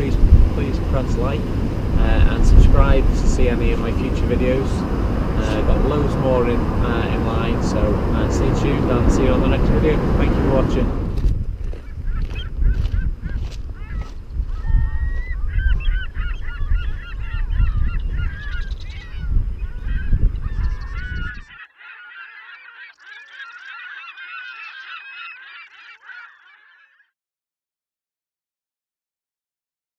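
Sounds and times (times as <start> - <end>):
wind rumbling on microphone: 0.0 - 21.6
geese honking: 19.8 - 27.1.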